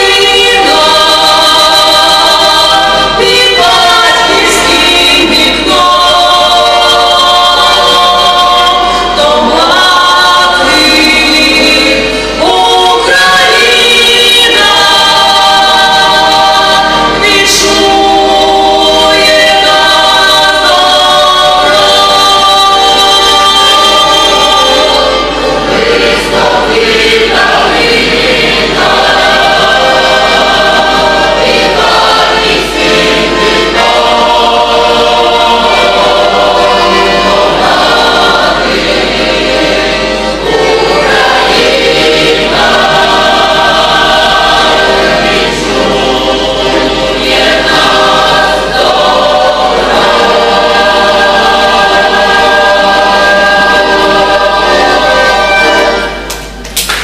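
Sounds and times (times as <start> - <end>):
mixed choir singing: 0.0 - 56.6.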